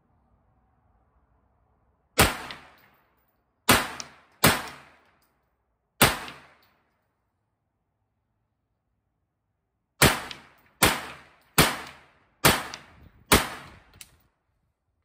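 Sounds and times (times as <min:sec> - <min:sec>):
gunshots with echo: 0:10.0 - 0:13.8.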